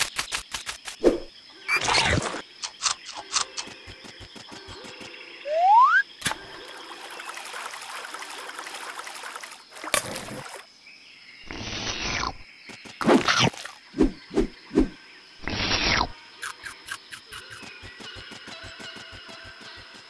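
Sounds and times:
rising cartoon whistle: 5.5 - 6.0.

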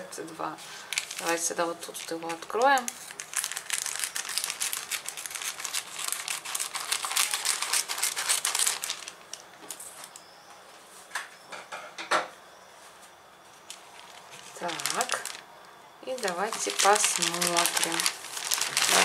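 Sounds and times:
plastic film crinkling: 0.8 - 10.2, 13.6 - 19.0
scissors cutting plastic: 2.0 - 9.4.

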